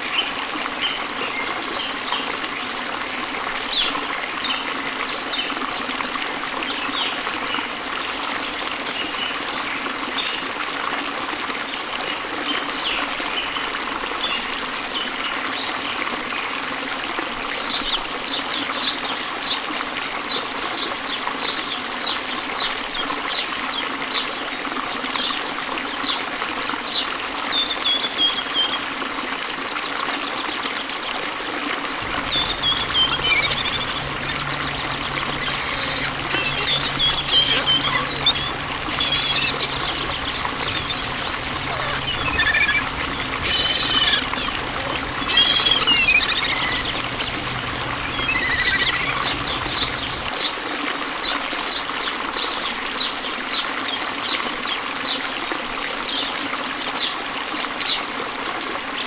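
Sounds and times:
water trickling: 0:31.9 - 0:50.8
bird trill: 0:32.0 - 0:50.4
small birds chirping: 0:32.0 - 0:50.5.

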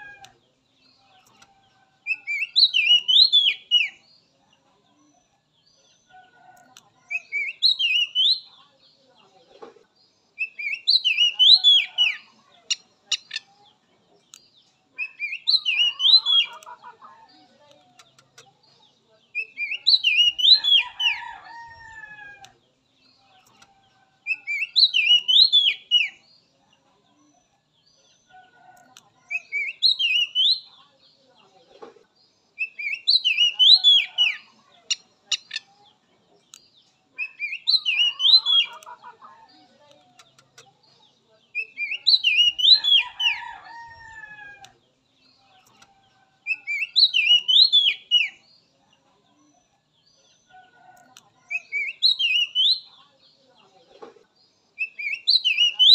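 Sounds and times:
bird singing whistled notes: 0:02.1 - 0:04.0, 0:07.1 - 0:08.5, 0:24.3 - 0:26.2, 0:29.3 - 0:30.7, 0:41.6 - 0:43.2, 0:46.5 - 0:48.4, 0:51.5 - 0:52.9, 0:54.8 - 0:55.9.

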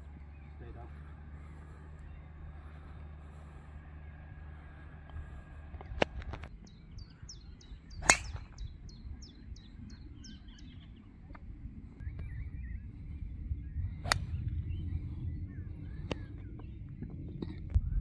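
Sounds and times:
bird chirping: 0:00.0 - 0:05.5, 0:06.5 - 0:18.0
golf club striking ball: 0:08.0 - 0:08.6, 0:14.0 - 0:14.3.

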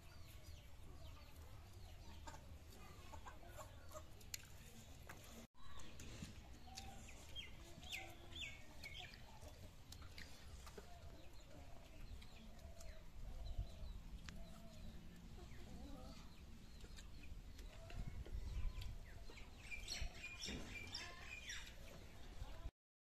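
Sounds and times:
small birds chirping: 0:00.0 - 0:22.7.

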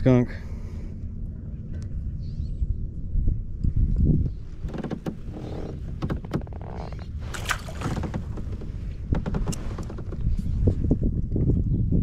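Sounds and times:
wind and water rumble: 0:00.0 - 0:12.0
fish splashing in water: 0:07.3 - 0:08.1.

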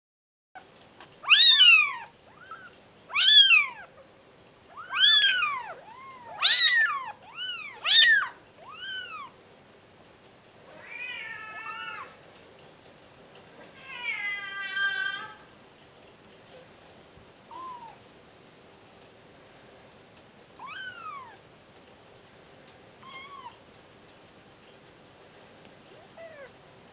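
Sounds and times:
kittens mewing: 0:01.2 - 0:04.0, 0:04.7 - 0:09.4, 0:10.7 - 0:12.2, 0:17.5 - 0:18.0, 0:20.6 - 0:21.4, 0:23.0 - 0:23.6, 0:25.9 - 0:26.6.

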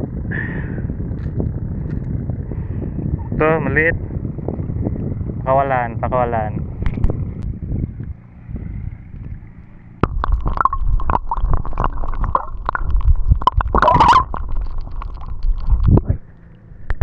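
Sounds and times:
water sloshing and gurgling: 0:08.0 - 0:17.0
water splash: 0:10.0 - 0:16.7.

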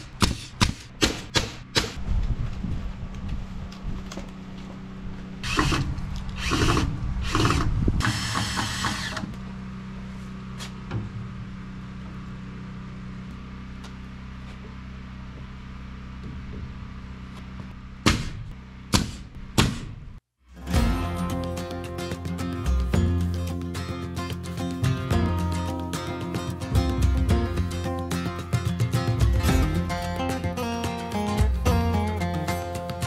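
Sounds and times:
power tool bursts: 0:05.4 - 0:09.3
steady low hum: 0:09.0 - 0:20.2.

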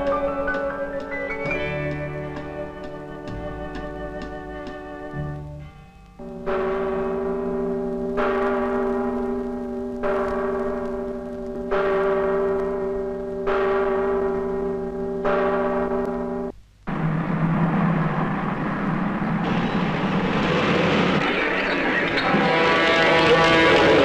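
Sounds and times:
bell tolling slowly: 0:06.2 - 0:16.5.

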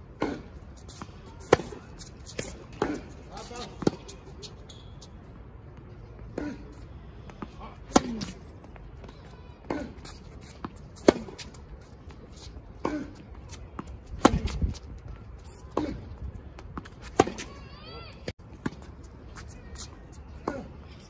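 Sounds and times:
racket hitting tennis ball: 0:00.2 - 0:04.5, 0:07.2 - 0:17.7.

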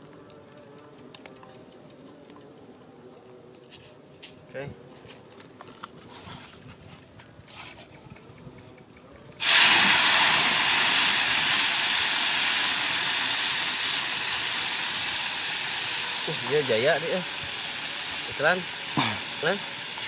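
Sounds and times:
deep-frying sizzle in hot oil: 0:09.4 - 0:20.0.

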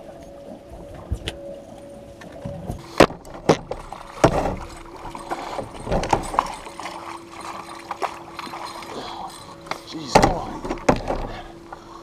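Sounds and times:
fish splashing in water: 0:03.4 - 0:11.3.

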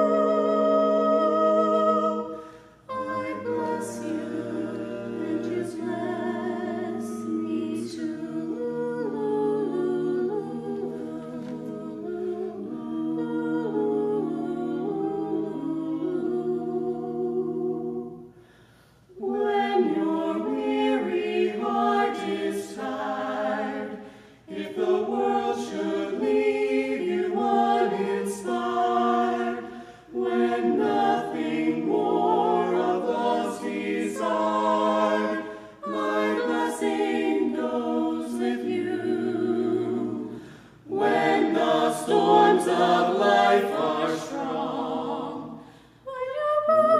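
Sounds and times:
vocal quartet singing a cappella: 0:00.0 - 0:46.9
singers breathing: 0:02.3 - 0:02.9, 0:18.3 - 0:19.1, 0:24.0 - 0:24.5, 0:29.7 - 0:30.1, 0:40.3 - 0:40.9, 0:45.6 - 0:46.1.

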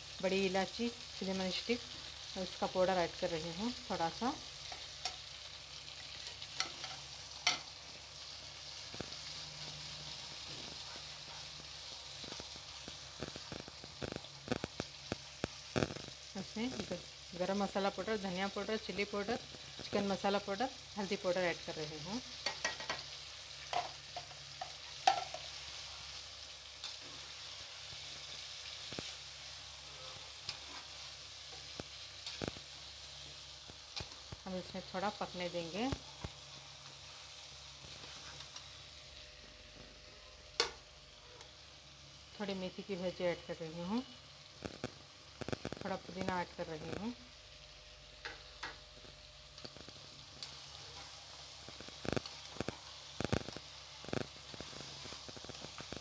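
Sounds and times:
food sizzling in a frying pan: 0:00.0 - 0:56.0
spatula stirring: 0:23.7 - 0:25.5, 0:29.8 - 0:32.6, 0:50.4 - 0:53.6.

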